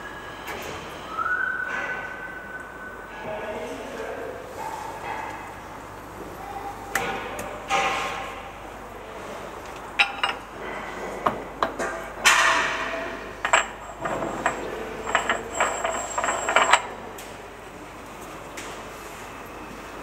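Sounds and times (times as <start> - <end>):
steel parts clinking: 13.4 - 16.9
metal scraping: 13.5 - 16.9.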